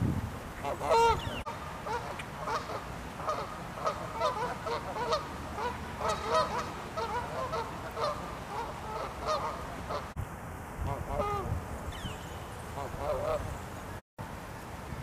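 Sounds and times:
geese honking: 0.6 - 10.1, 10.9 - 11.5, 12.7 - 13.5.

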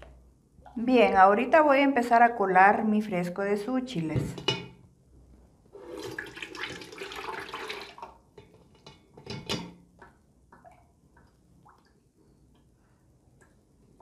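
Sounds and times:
liquid pouring and splashing: 5.8 - 12.5
liquid trickling and dripping: 6.0 - 14.0.

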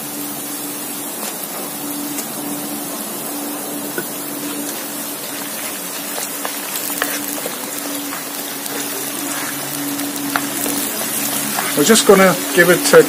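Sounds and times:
low hum: 0.0 - 12.8
oil sizzling and crackling in a wok: 0.0 - 13.0
wooden spatula stirring: 4.4 - 13.0.

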